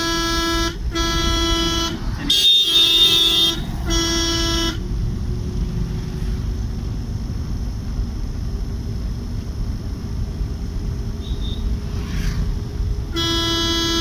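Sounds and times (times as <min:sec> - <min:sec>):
vehicle horn honking: 0:00.0 - 0:04.8, 0:11.2 - 0:11.8, 0:13.1 - 0:14.0
engine and road noise: 0:00.0 - 0:14.0.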